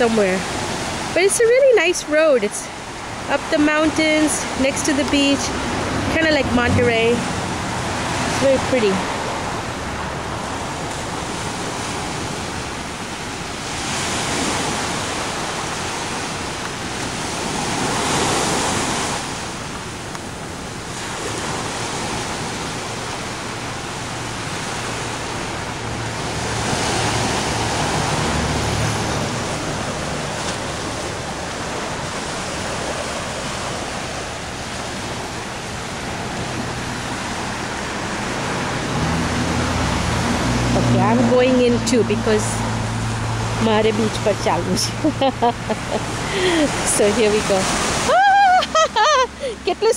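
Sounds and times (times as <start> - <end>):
waves breaking on beach: 0.0 - 49.9.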